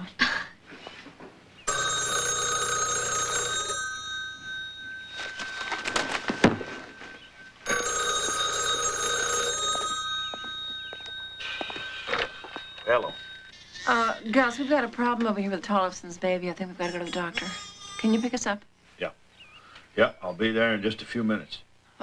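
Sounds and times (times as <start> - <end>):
telephone bell ringing: 1.7 - 14.2.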